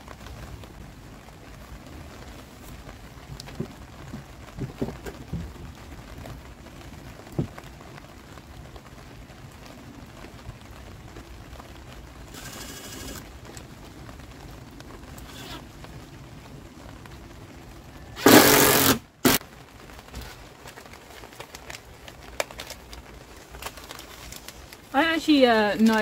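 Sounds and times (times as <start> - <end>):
light rain hissing: 0.0 - 26.0
wooden plank knocks: 3.5 - 5.7
impact driver hammering screw: 18.2 - 19.4.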